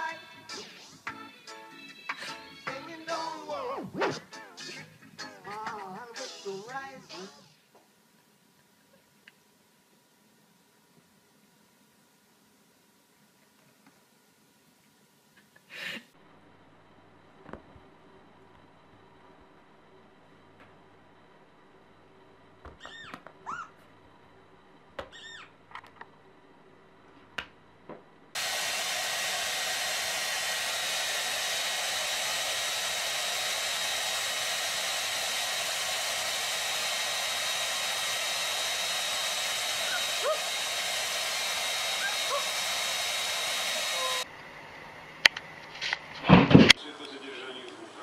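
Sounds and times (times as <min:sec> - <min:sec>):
hair dryer running: 0:28.4 - 0:44.3.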